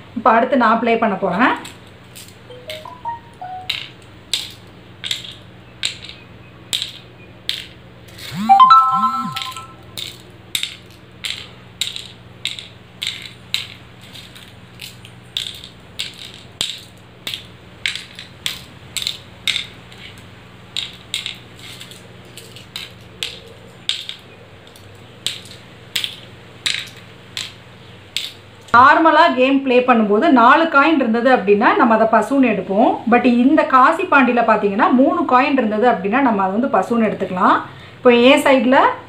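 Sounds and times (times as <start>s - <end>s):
faint steady hum: 0.0s - 39.0s
shells clicking into wooden board: 3.7s - 7.8s, 9.4s - 20.2s, 20.8s - 28.4s.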